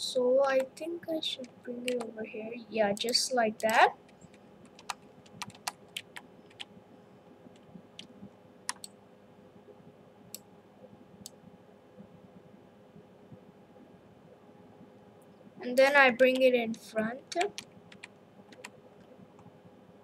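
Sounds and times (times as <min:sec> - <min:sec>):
faint steady hum: 0:00.0 - 0:20.0
computer mouse clicking: 0:01.9 - 0:02.1, 0:03.0 - 0:06.7, 0:07.5 - 0:09.0, 0:17.3 - 0:19.5.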